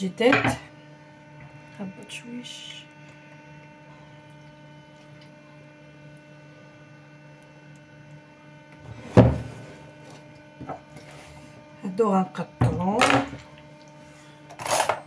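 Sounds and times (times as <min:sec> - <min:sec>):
steady electrical hum: 0:00.0 - 0:15.0
cutting board knocking on counter: 0:09.1 - 0:09.6.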